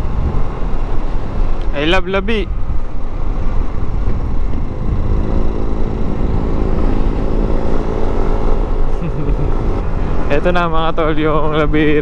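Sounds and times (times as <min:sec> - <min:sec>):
wind and road noise: 0:00.0 - 0:12.0
scooter engine running: 0:03.4 - 0:10.4.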